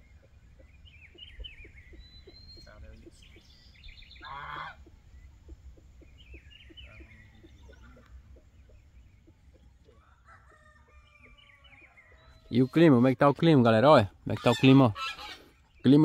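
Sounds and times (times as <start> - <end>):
faint bird chirping: 0.0 - 16.0
goose honking: 4.2 - 4.9, 14.4 - 15.5.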